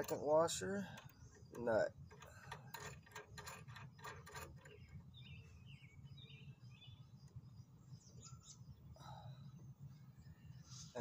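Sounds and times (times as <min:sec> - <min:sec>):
bird chirping: 0:00.0 - 0:03.1, 0:03.7 - 0:11.0
small metallic clicks of nut: 0:00.9 - 0:05.0.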